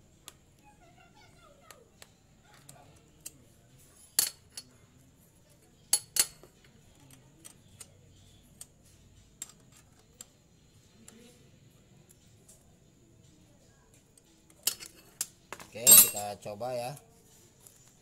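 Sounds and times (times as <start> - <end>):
metal tools clinking: 14.7 - 16.4.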